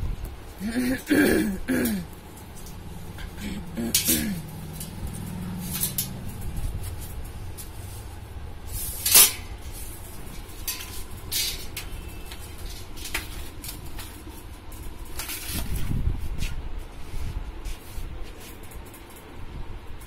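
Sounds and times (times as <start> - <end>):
steady low rumble: 0.0 - 20.0
handling clicks and clatter: 1.8 - 16.0.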